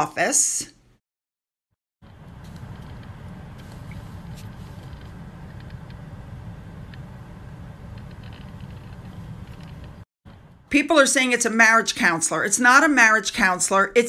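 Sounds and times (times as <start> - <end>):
low outdoor rumble: 2.0 - 12.0.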